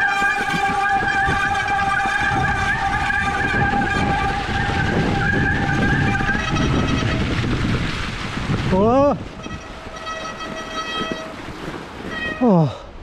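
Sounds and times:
high-pitched whine from bike: 0.0s - 7.1s
bike tyres rumbling over snow: 0.0s - 12.8s.

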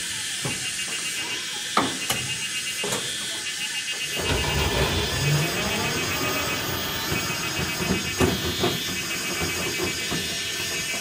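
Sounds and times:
motorcycle engine driving away: 4.1s - 9.9s.

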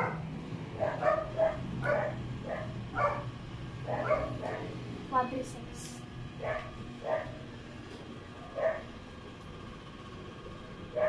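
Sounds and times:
dog barking: 0.0s - 4.8s, 6.4s - 7.4s, 8.5s - 8.9s.

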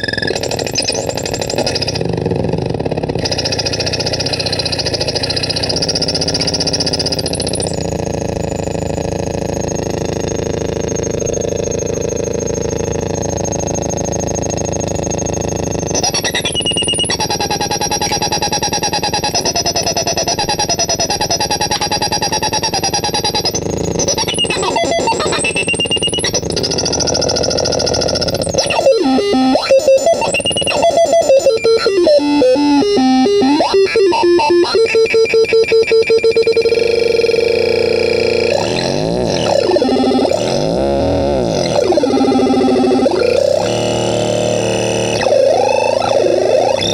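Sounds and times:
electronic drone: 0.0s - 46.9s
harsh pulsing electronic warble: 0.0s - 46.9s
synth note stuttering into buzzing: 15.9s - 46.9s.

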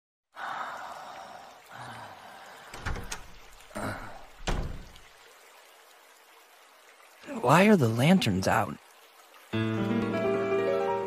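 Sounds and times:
faint breathy noise: 0.4s - 2.8s
knocks and dull thuds: 4.4s - 5.0s.

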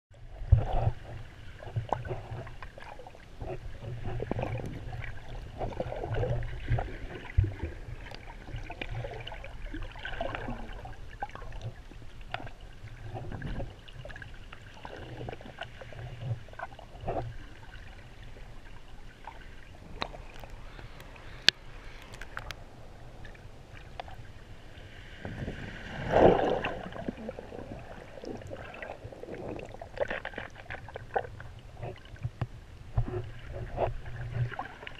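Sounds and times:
underwater sloshing and gurgling: 0.1s - 34.9s
swirling water surge: 24.6s - 30.0s.

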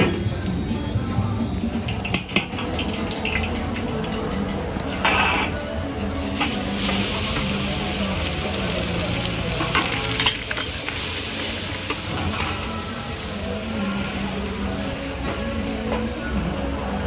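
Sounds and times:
hot oil sizzling in wok: 1.8s - 16.6s
metal spatula scraping wok: 2.0s - 5.7s.

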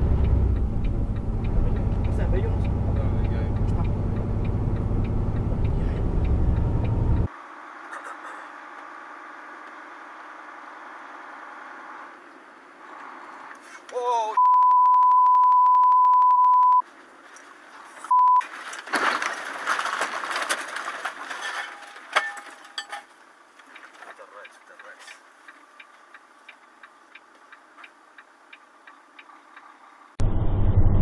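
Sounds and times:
cab noise: 0.0s - 7.3s
high-pitched censor bleep: 14.4s - 16.8s, 18.1s - 18.4s
rush of noise: 30.2s - 31.0s.

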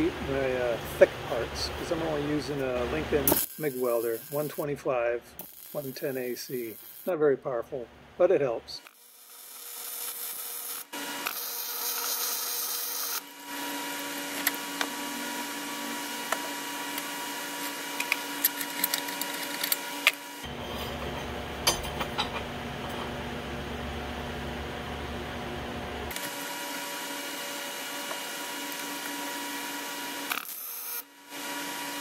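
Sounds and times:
welding arc crackling: 1.8s - 7.1s, 8.8s - 20.5s, 26.1s - 31.0s
metal parts clicking on a vise: 18.0s - 19.8s.

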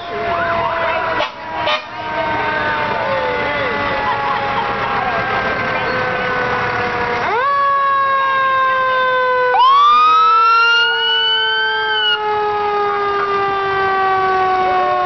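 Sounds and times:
fire engine siren wailing: 0.0s - 15.0s
second siren tone sweeping up: 7.9s - 13.3s.

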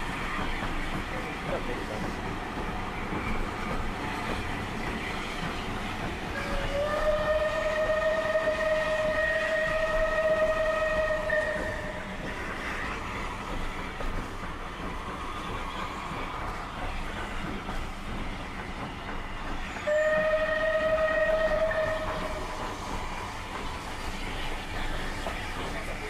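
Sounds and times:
train rumbling: 0.0s - 26.0s
locomotive horn blast: 6.4s - 12.1s, 19.9s - 22.5s.

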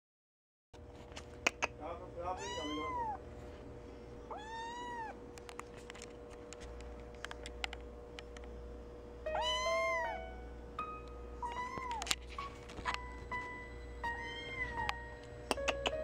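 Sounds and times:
kitten meowing: 2.4s - 3.2s, 4.3s - 5.2s, 11.4s - 12.2s.

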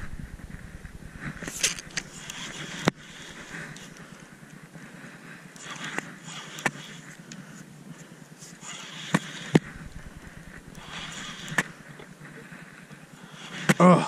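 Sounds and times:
wind hiss on microphone: 0.0s - 4.4s, 9.1s - 11.9s.

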